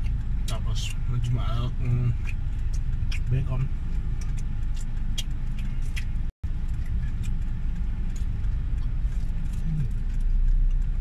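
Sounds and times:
car cabin rumble: 0.0 - 11.0
mouth sounds of eating: 8.2 - 11.0.

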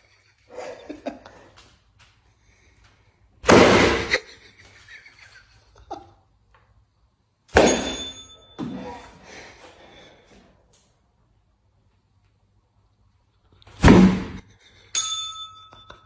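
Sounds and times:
foam pool noodle hits: 3.4 - 4.2, 7.5 - 8.9, 13.8 - 14.4.

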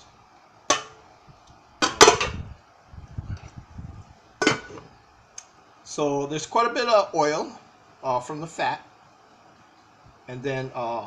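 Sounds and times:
dishes being set down: 0.7 - 1.0, 1.8 - 2.4, 4.4 - 4.9
glass pot lid clattering: 4.4 - 4.8.

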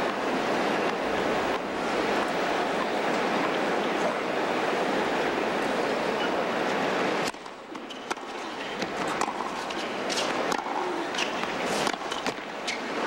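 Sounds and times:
crowd murmur: 0.0 - 13.0
tennis balls struck by racquets: 7.2 - 12.8.

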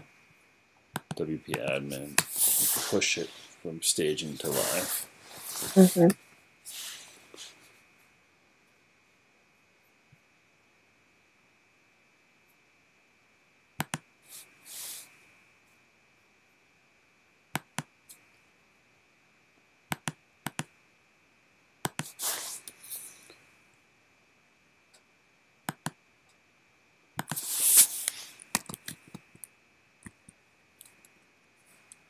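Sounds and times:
computer mouse clicks: 0.9 - 1.6, 13.8 - 14.0, 17.6 - 17.9, 19.9 - 20.7, 21.8 - 22.2, 25.7 - 26.0, 27.2 - 27.4, 28.4 - 31.1
short hissy rush: 1.9 - 6.1, 6.7 - 7.7, 14.3 - 15.1, 22.0 - 23.3, 27.3 - 28.4.

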